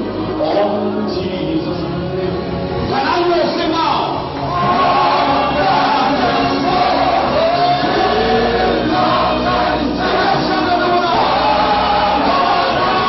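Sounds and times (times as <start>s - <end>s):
congregation singing over music: 4.2s - 13.0s.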